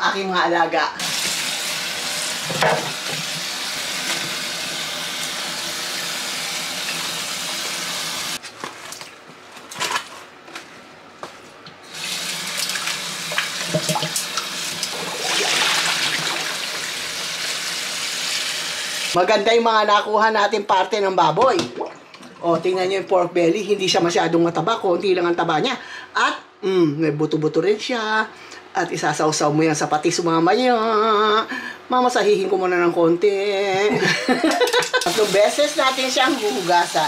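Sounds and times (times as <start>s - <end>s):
faucet running into pot: 1.0s - 8.4s, 11.9s - 19.1s, 34.6s - 37.0s.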